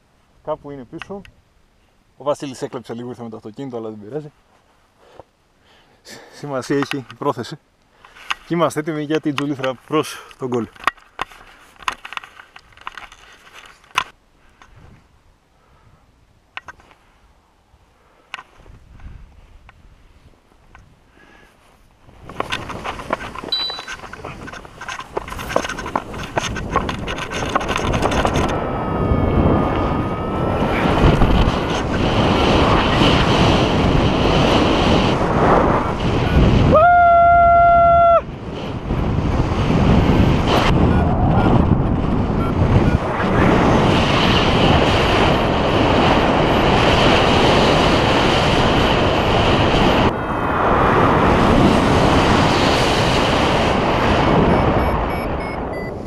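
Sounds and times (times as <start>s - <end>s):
wind buffeting microphone: 18.6s - 21.0s, 22.0s - 56.0s
steady high tone: 23.5s - 24.0s, 28.1s - 31.9s.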